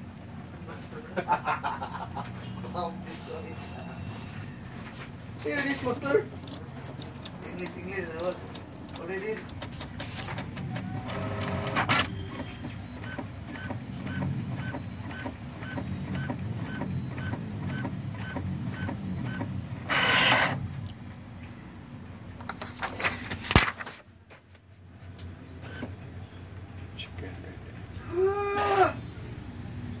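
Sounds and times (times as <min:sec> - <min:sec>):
inkjet printer running: 0:05.4 - 0:20.6
printer ticking: 0:05.5 - 0:20.6
printer clicks: 0:06.4 - 0:20.6.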